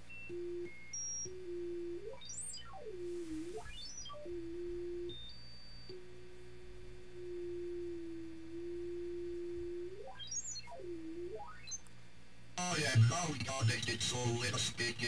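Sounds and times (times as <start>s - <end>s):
low electronic sine tone: 0.0s - 11.9s.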